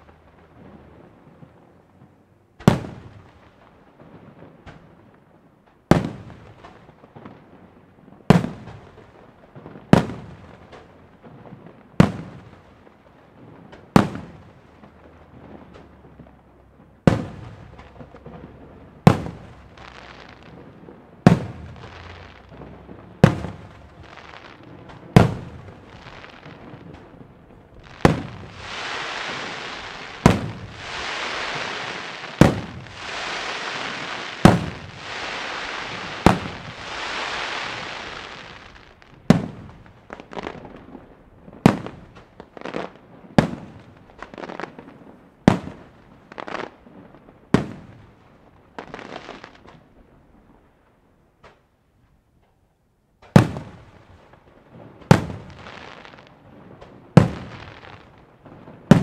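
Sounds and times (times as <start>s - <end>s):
dense firework hiss: 18.9s - 20.7s, 21.3s - 27.0s, 27.8s - 40.6s, 55.1s - 56.3s, 57.2s - 58.1s
firework shells bursting: 21.3s - 39.7s.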